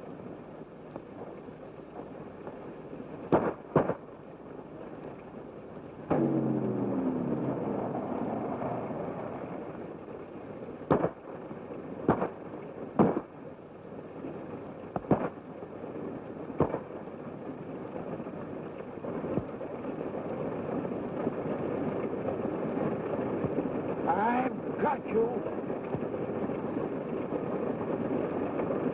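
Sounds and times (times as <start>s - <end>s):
film soundtrack hiss: 0.0s - 28.9s
gunshots: 3.3s - 4.0s, 6.1s - 9.7s, 10.9s - 11.3s, 12.1s - 12.4s, 13.0s - 13.4s, 15.0s - 15.4s, 16.6s - 17.0s
vehicle engine running: 6.0s - 10.4s.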